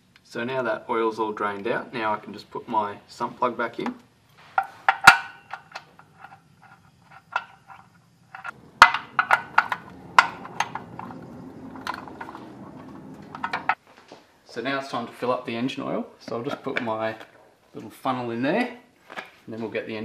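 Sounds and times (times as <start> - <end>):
metal tools clinking: 4.6 - 13.8
sharp metal knocks: 7.2 - 13.8.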